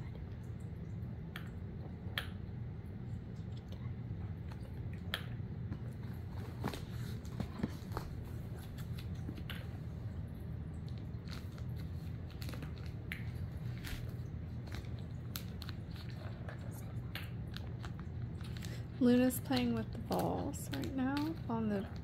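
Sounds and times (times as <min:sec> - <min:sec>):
steady low hum: 0:00.0 - 0:22.0
cats playing with toys: 0:04.6 - 0:10.0, 0:10.8 - 0:22.0.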